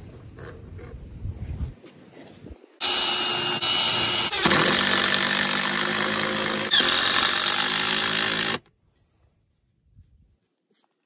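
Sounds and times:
cordless drill whining: 2.8 - 8.7.

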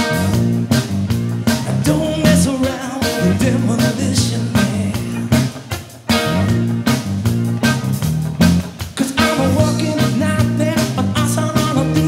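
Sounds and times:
live rock band playing: 0.0 - 12.0.

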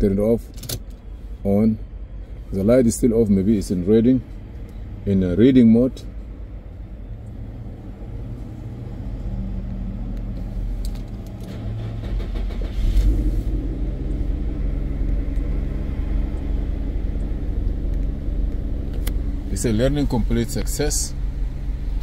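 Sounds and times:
vehicle engine running: 6.2 - 22.0.

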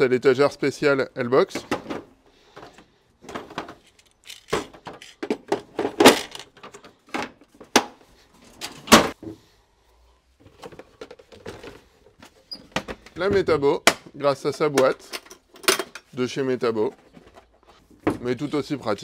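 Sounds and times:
plastic tool case clicks and knocks: 1.6 - 8.0.

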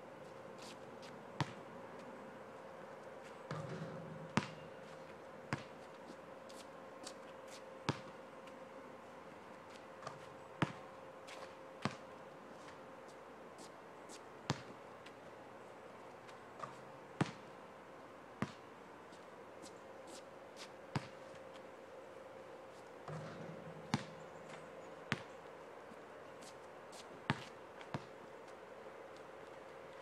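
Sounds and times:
basketball bouncing on asphalt: 1.4 - 1.7, 3.5 - 4.8, 5.5 - 5.8, 7.9 - 8.2, 10.0 - 12.1, 14.5 - 14.7, 16.6 - 17.5, 18.4 - 18.7, 20.9 - 21.2, 23.0 - 25.3, 27.2 - 28.2.

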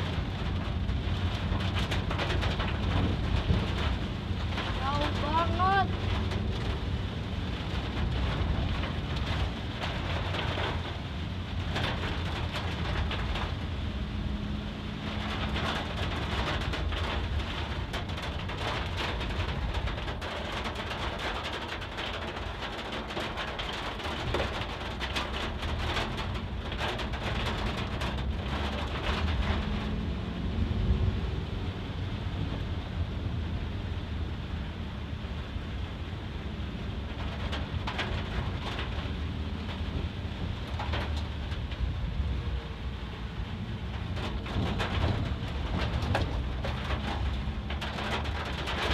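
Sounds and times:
car engine and tyres on wet road: 0.0 - 48.9
heavy rain on a car: 0.0 - 48.9.

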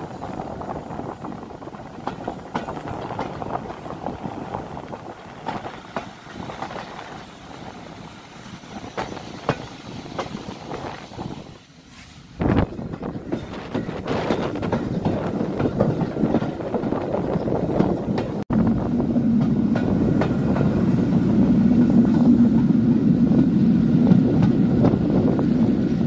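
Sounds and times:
train wheels rumbling on rails: 0.0 - 26.0
wheels clacking over rail joints: 1.6 - 11.0, 12.6 - 18.4.

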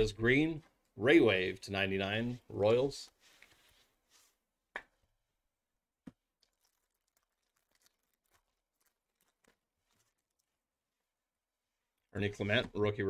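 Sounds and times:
trading cards and wrappers rustling: 6.3 - 10.6.

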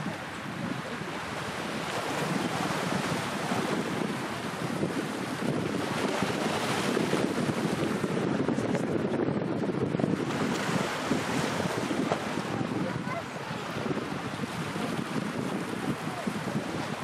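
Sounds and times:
choppy sea water: 0.0 - 17.0
wind buffeting microphone: 0.0 - 17.0.

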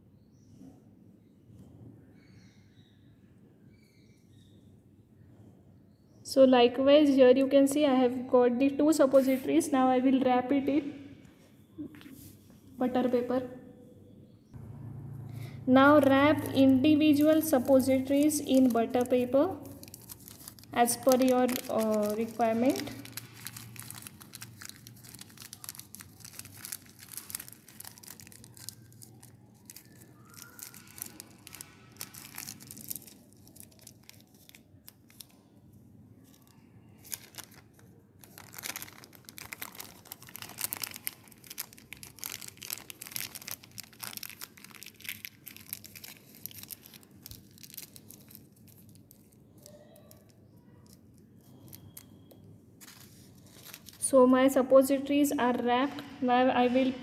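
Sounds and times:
paper crinkling: 16.0 - 35.6, 36.2 - 54.2.

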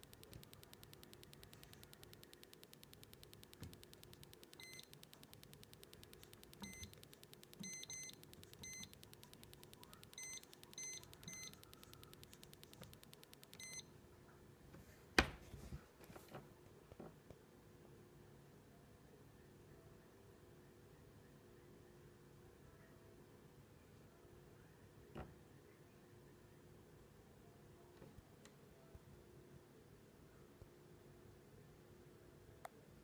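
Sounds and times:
faint electronic ticking: 0.0 - 13.9
short electronic beeps: 0.0 - 13.9.

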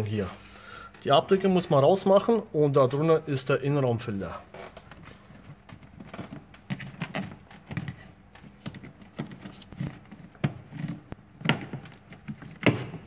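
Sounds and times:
plastic panel clicks and knocks: 5.7 - 13.0.

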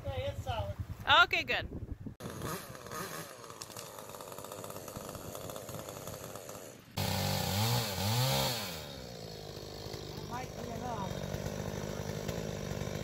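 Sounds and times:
chainsaw cutting wood: 2.2 - 13.0.

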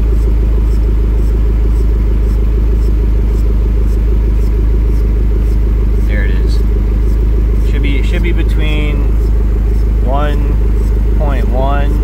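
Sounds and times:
car engine running: 0.0 - 12.0.

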